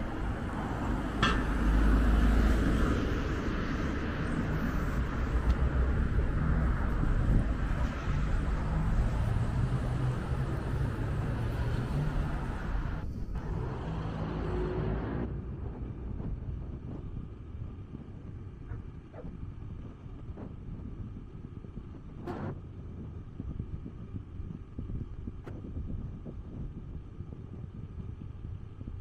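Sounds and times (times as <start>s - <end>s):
car traffic passing: 0.0s - 19.7s.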